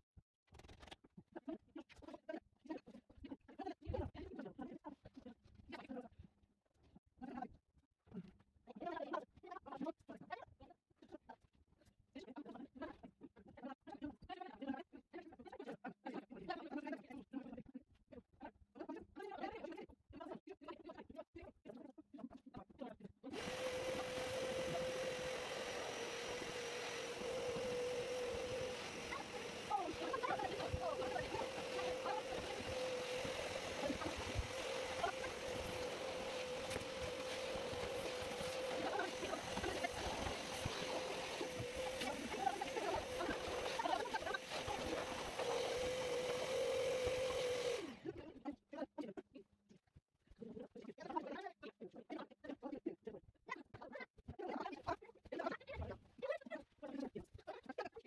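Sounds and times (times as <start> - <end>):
vacuum cleaner running: 23.3 - 48.1.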